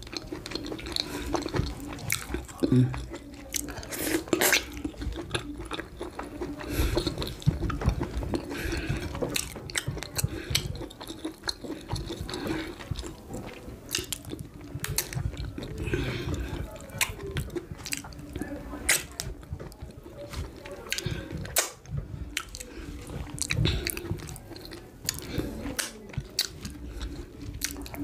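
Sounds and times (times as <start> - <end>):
close chewing and mouth sounds: 0.0 - 28.0
lip smacks and sticky clicks: 20.9 - 22.7, 23.4 - 26.7.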